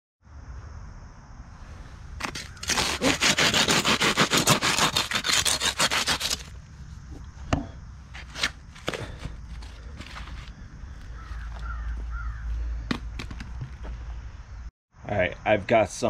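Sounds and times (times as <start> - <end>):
handsaw cutting foam: 2.2 - 6.5.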